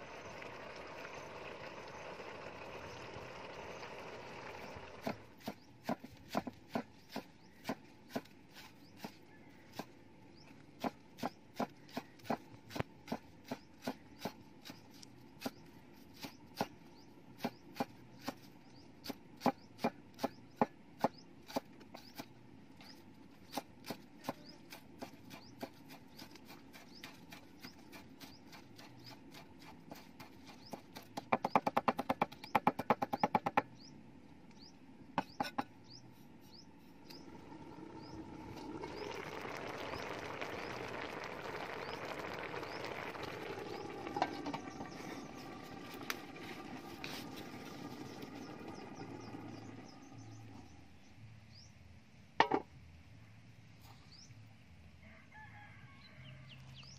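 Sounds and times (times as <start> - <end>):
knife chopping on wooden board: 30.7 - 33.6.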